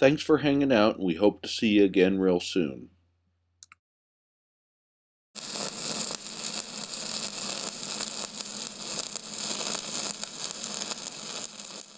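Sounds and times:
crackling hiss: 5.4 - 11.9.

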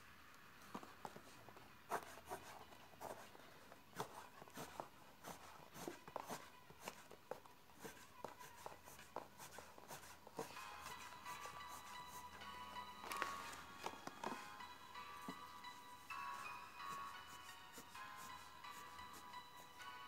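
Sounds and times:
pencil scratching on paper: 1.9 - 3.3, 4.0 - 7.2, 7.8 - 12.3, 16.3 - 19.8.

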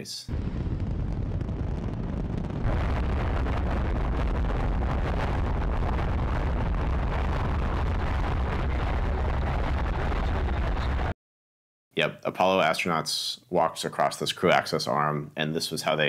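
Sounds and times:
rocket engines rumbling: 0.0 - 11.1.

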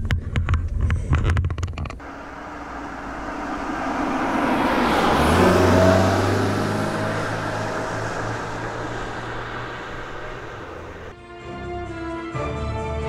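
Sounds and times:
low engine hum: 2.0 - 11.1
vehicle driving by: 2.0 - 11.1.

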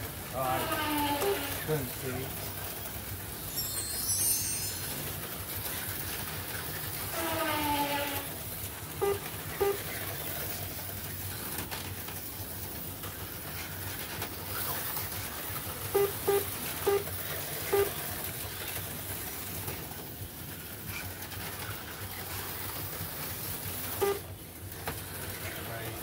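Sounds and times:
slot car motors whirring: 8.2 - 26.0
short electronic beeps: 9.0 - 9.8, 16.0 - 17.1, 17.7 - 17.9, 24.0 - 24.2.

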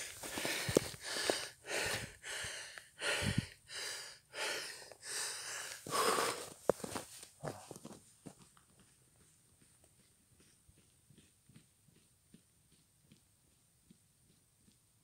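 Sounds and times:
man breathing heavily: 0.0 - 7.8.

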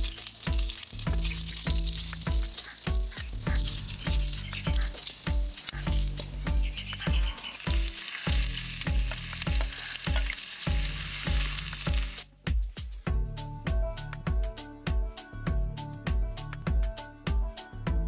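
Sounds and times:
oil sizzling in frying pan: 0.0 - 12.3
background music with beat: 0.0 - 18.0.

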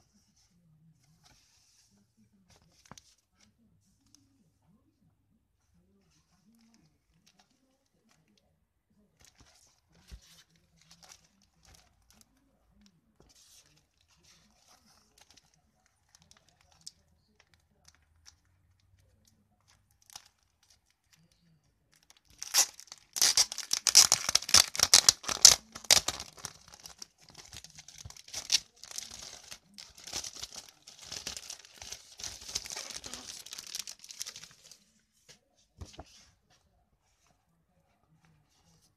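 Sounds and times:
plastic crinkling: 21.9 - 34.9.

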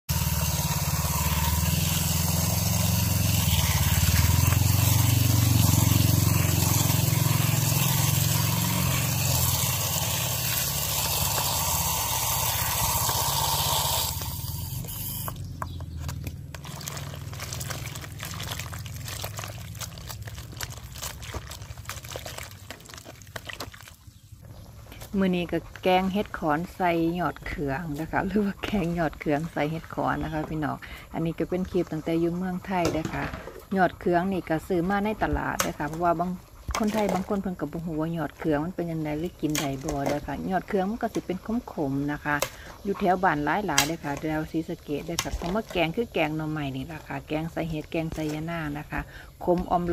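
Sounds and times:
hand rinsing mushrooms in water: 0.1 - 14.1, 16.1 - 24.2
water pouring into basin: 0.1 - 15.3, 16.5 - 24.1.

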